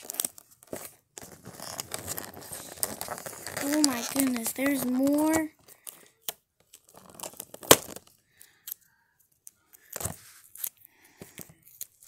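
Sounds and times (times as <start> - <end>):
plastic and cardboard crinkling: 0.0 - 8.2
sharp plastic crack: 6.2 - 8.2.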